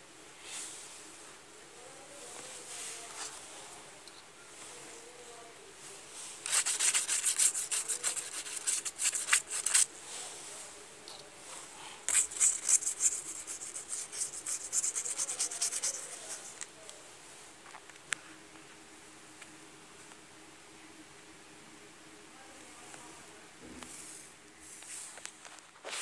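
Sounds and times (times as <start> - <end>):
tool scratching paper: 6.4 - 9.9, 12.1 - 16.6.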